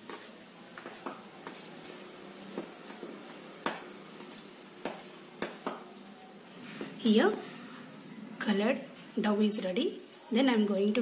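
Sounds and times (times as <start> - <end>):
spoon mashing dough in bowl: 0.0 - 7.4.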